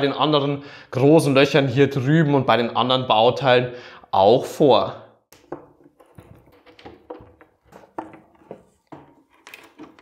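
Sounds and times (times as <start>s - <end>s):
wooden panels being handled: 5.4s - 10.0s.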